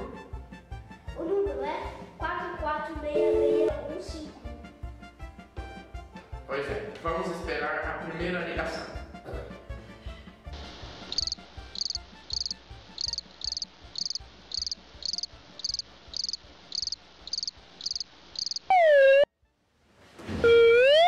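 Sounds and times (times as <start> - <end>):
crickets chirping: 10.6 - 18.7.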